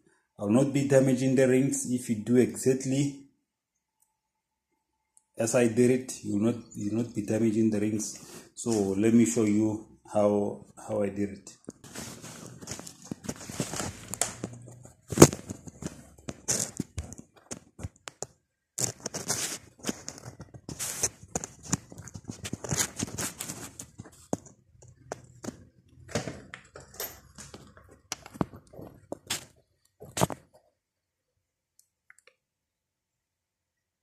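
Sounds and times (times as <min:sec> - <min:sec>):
rustling: 0:11.7 - 0:17.9, 0:18.8 - 0:25.3.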